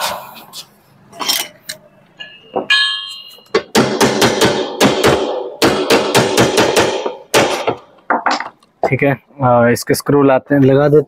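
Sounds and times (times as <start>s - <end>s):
short metallic ring: 2.2s - 3.6s.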